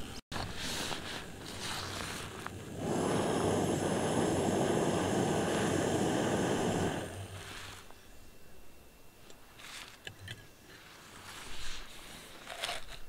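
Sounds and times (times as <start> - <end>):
gas stove burner hissing: 0.0 - 8.3.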